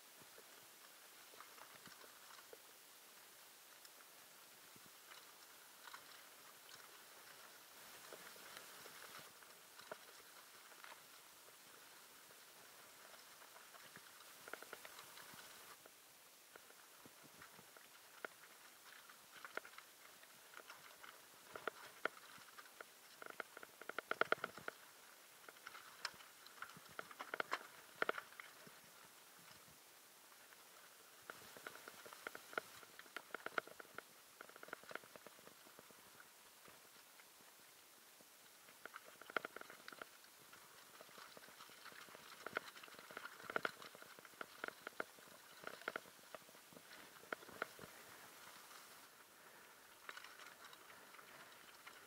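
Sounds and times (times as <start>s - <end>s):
mountain bike rattling over rocks: 38.8s - 52.0s.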